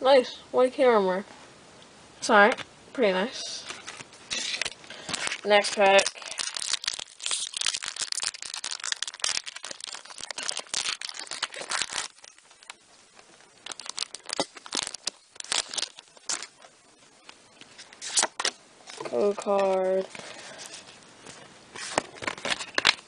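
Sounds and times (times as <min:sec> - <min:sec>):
foil wrapper tearing and crinkling: 0:03.7 - 0:12.8, 0:13.4 - 0:16.7, 0:17.8 - 0:20.0, 0:21.8 - 0:23.0.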